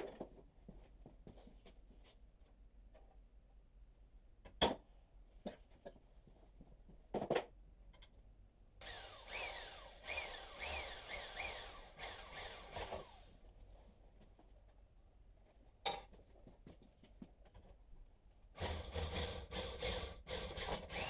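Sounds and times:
electric drill boring through steel: 8.8s - 13.4s, 18.6s - 21.0s.

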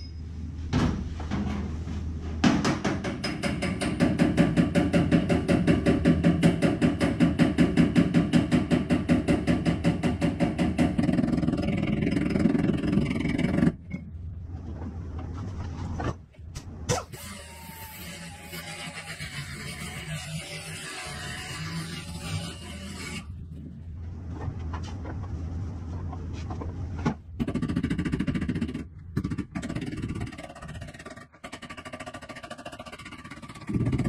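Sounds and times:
mechanical hammering on sheet metal: 2.4s - 13.0s.

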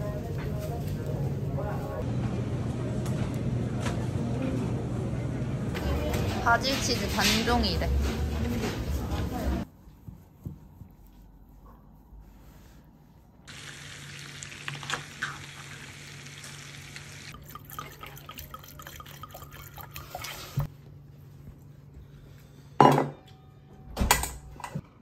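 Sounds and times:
wine pouring into glass: 17.3s - 20.7s
tableware knocks: 22.8s - 23.2s.

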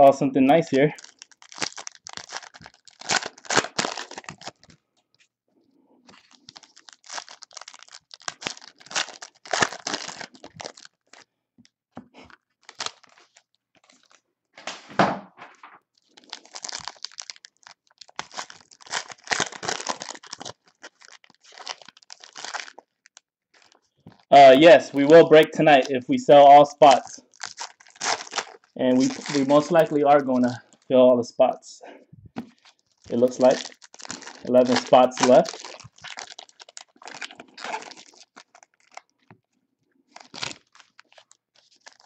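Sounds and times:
card pack wrappers tearing: 0.5s - 4.7s, 6.1s - 11.2s, 12.2s - 14.2s, 16.0s - 25.9s, 26.8s - 30.8s, 32.6s - 39.1s, 40.1s - 42.0s
cards being handled: 34.4s - 35.9s.

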